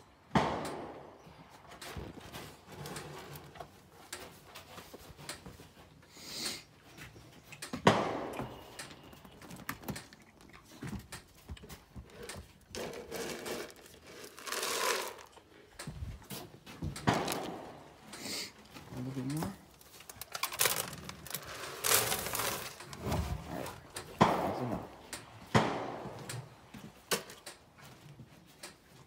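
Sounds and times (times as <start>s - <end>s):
cow crunching feed pellets: 8.4s - 25.0s.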